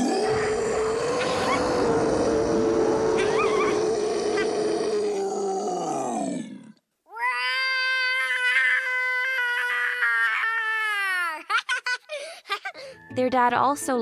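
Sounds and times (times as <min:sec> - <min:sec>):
creature roaring: 0:00.0 - 0:06.8.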